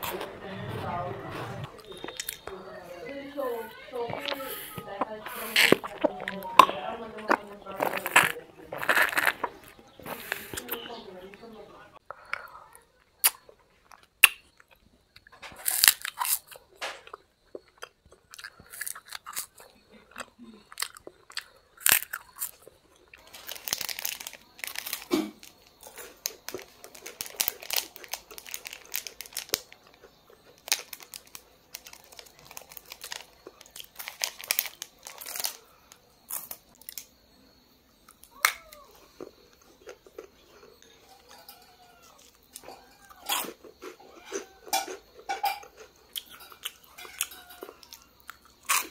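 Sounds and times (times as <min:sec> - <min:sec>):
crunchy bites and chewing: 0:01.7 - 0:02.6, 0:04.1 - 0:10.9, 0:12.1 - 0:48.9
plastic wrapper crinkling: 0:23.2 - 0:35.7.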